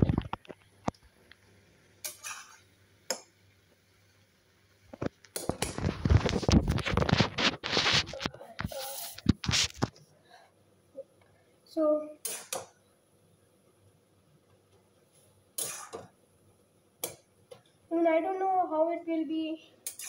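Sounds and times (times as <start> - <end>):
metal spatula scraping wok: 2.0 - 2.6.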